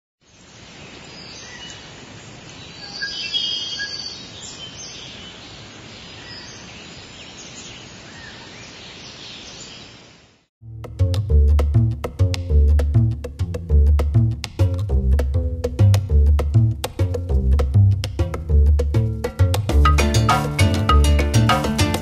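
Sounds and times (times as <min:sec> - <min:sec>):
steady hiss: 0:00.2 - 0:03.2
birds chirping: 0:00.4 - 0:10.2.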